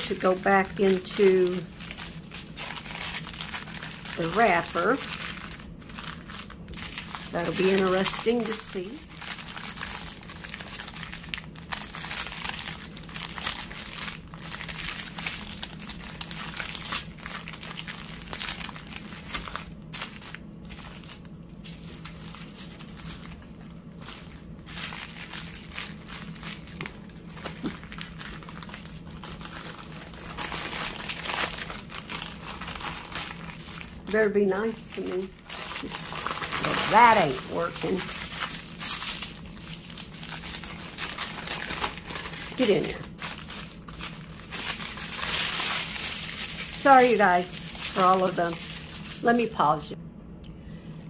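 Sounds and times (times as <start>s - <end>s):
plastic wrapper crinkling: 0.0s - 49.9s.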